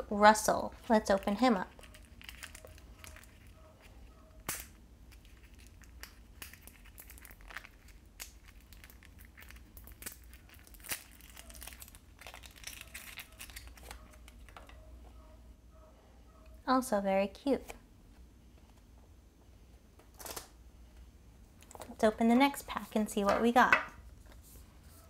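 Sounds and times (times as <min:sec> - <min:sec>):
plastic wrapper crinkling: 0:00.9 - 0:03.6, 0:04.4 - 0:14.8.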